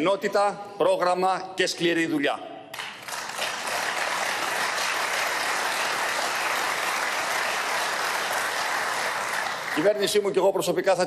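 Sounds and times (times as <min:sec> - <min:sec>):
crowd applauding: 0:02.7 - 0:10.3.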